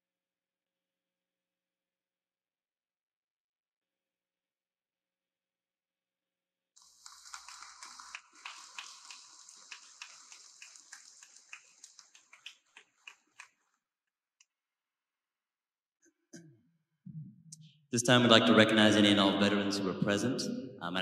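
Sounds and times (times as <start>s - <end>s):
audience applauding: 6.8s - 13.7s.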